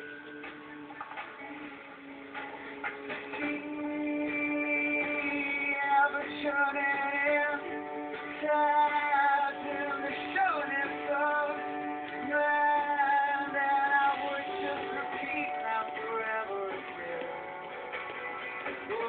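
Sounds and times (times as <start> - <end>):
music with singing from television: 0.0 - 19.0.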